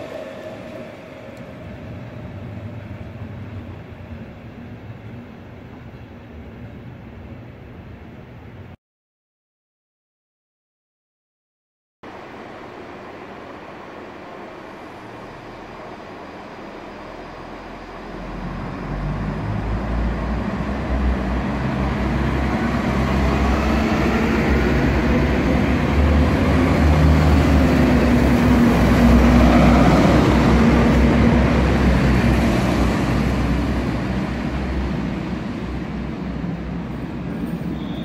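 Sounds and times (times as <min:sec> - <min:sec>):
wheels on rails: 0:00.0 - 0:07.5
diesel train passing: 0:00.0 - 0:08.8, 0:12.1 - 0:38.0.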